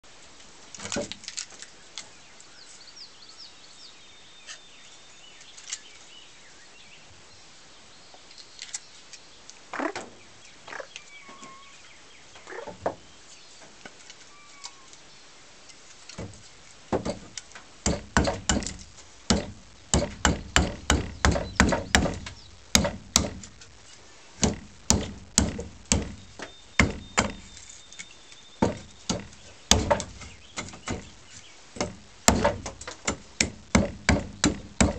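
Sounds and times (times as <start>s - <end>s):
axe chopping wood: 16.2s - 23.7s, 24.4s - 27.6s, 28.6s - 31.1s, 31.8s - 34.9s.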